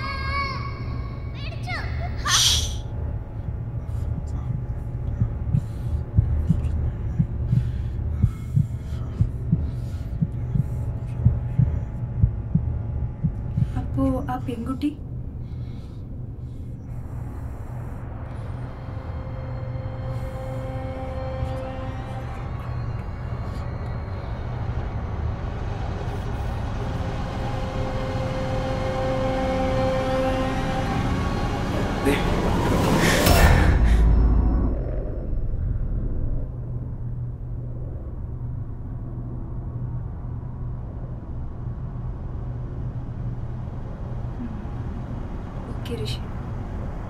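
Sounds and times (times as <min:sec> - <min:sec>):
low rumbling drone: 0:00.0 - 0:47.0
steady low hum: 0:00.0 - 0:47.0
heartbeat double thump: 0:04.1 - 0:13.9.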